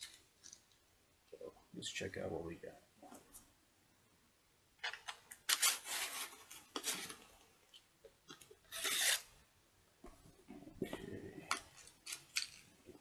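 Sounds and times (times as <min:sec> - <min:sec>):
small clicks and rustles: 0:00.0 - 0:00.9
knife scraping through cardboard: 0:08.7 - 0:09.3.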